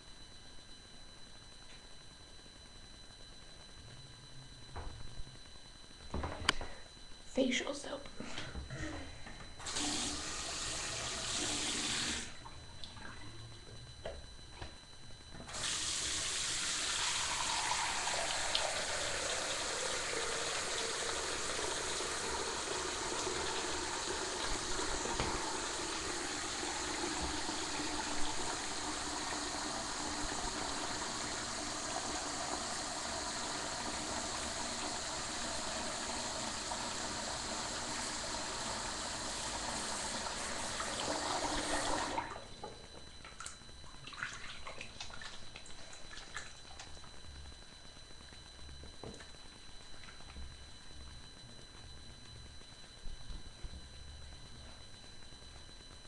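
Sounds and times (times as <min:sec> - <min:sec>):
sink tap running: 0:09.6 - 0:12.3, 0:15.5 - 0:42.3.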